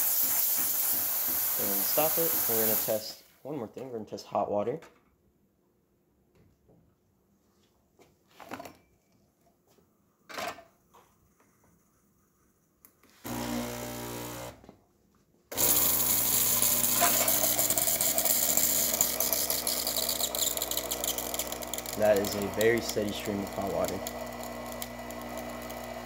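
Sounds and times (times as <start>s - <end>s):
espresso machine pump humming: 0.0s - 3.0s, 13.3s - 14.6s, 15.5s - 26.0s
hissing stream of water: 0.0s - 3.2s.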